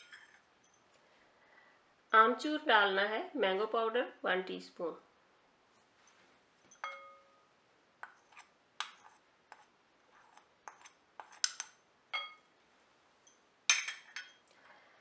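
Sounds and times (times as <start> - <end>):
spoon clinking against glass bowl: 6.7 - 7.4, 11.4 - 12.5
spoon tapping china saucer: 6.7 - 7.4.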